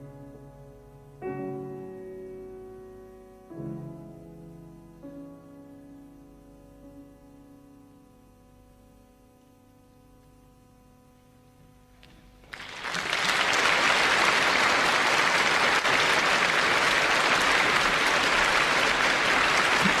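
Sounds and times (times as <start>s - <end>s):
audience applause: 12.4s - 20.0s.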